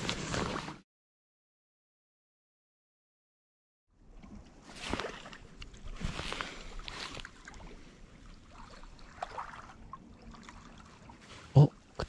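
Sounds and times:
small waves lapping at shore: 0:04.0 - 0:12.0.

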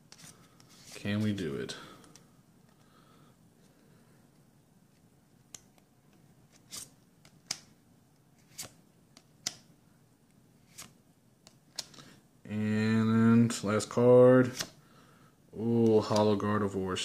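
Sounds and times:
trading cards snapping and swishing: 0:08.4 - 0:09.7, 0:10.7 - 0:12.0, 0:14.5 - 0:14.8.

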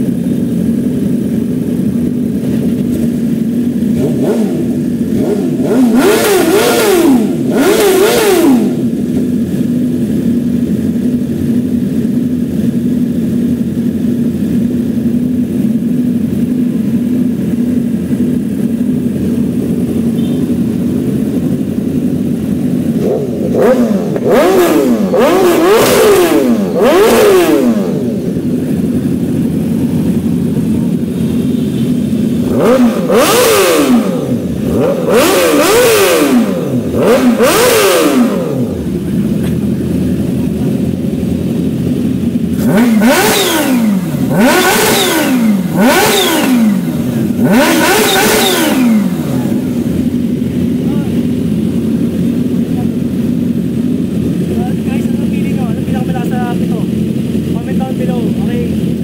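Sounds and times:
motorcycle engines idling: 0:00.0 - 0:59.0
engine revving: 0:03.8 - 0:10.2, 0:18.7 - 0:59.0.

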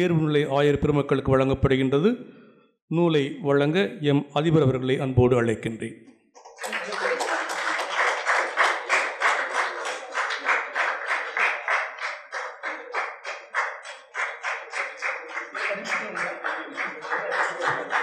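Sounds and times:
audience clapping in rhythm: 0:06.4 - 0:18.0.

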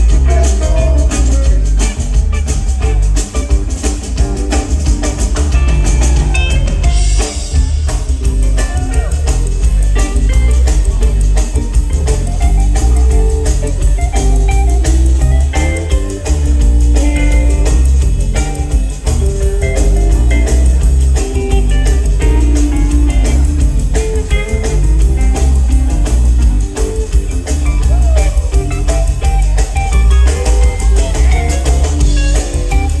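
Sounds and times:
rock band playing live: 0:00.0 - 0:33.0.

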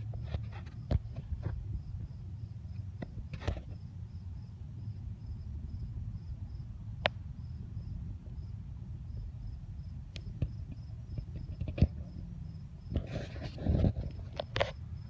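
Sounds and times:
cricket chirping: 0:00.0 - 0:15.0.

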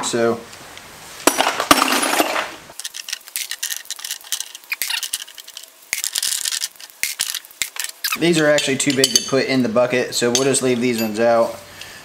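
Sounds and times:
metal tools clattering into bucket: 0:01.3 - 0:09.5, 0:10.2 - 0:11.3
light metallic clinks: 0:02.8 - 0:09.6, 0:10.2 - 0:12.0.

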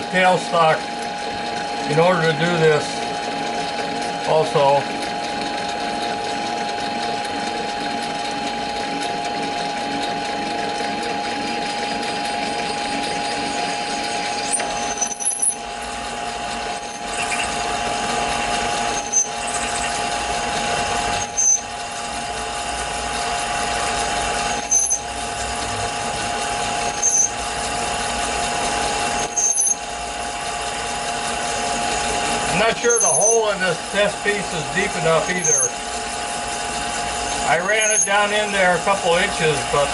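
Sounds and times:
lathe motor whine: 0:00.0 - 0:39.9
short high squeaks: 0:12.7 - 0:15.7, 0:16.7 - 0:17.6, 0:18.3 - 0:20.0, 0:21.1 - 0:21.8, 0:24.4 - 0:25.1, 0:26.8 - 0:27.4, 0:29.1 - 0:29.9, 0:32.8 - 0:33.4, 0:35.2 - 0:35.8, 0:37.2 - 0:38.2.

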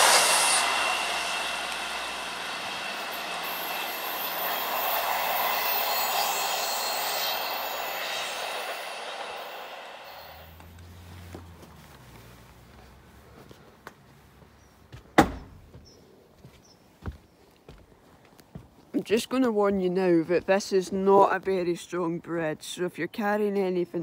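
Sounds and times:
train passing: 0:00.0 - 0:14.8.

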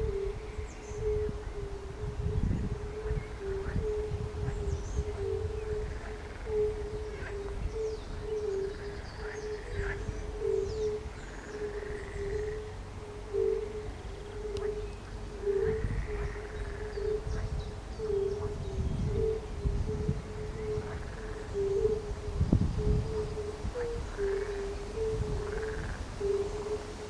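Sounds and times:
frogs croaking: 0:00.0 - 0:27.0
toads giving soft unk calls: 0:22.8 - 0:26.9.

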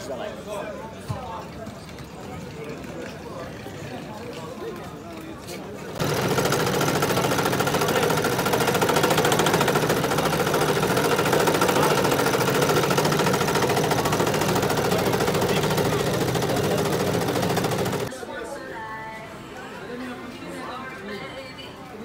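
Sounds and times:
coffee grinder whirring: 0:06.0 - 0:18.1.

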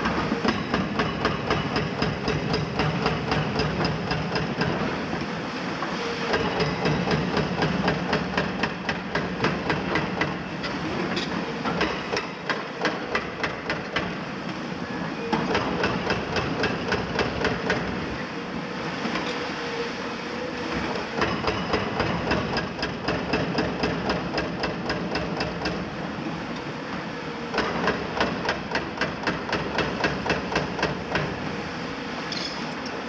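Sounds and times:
hydraulic breaker hammering concrete: 0:00.5 - 0:04.9, 0:06.3 - 0:10.4, 0:15.4 - 0:17.9, 0:21.2 - 0:25.9, 0:27.6 - 0:31.4.

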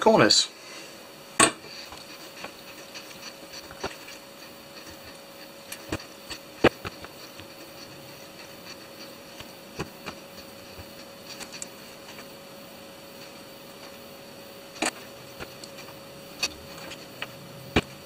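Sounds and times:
faint steady hum: 0:00.0 - 0:18.0
wires clicking and tapping: 0:01.9 - 0:12.2.

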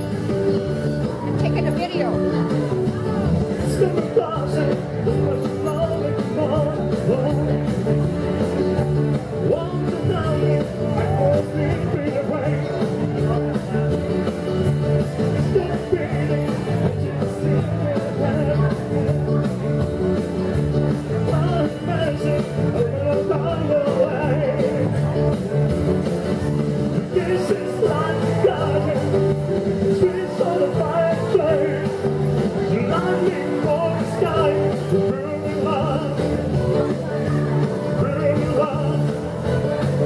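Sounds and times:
rock and roll backing track: 0:00.0 - 0:40.0
man singing into microphone: 0:03.5 - 0:08.4, 0:09.4 - 0:13.9, 0:15.1 - 0:19.5, 0:21.1 - 0:25.4, 0:26.9 - 0:40.0.

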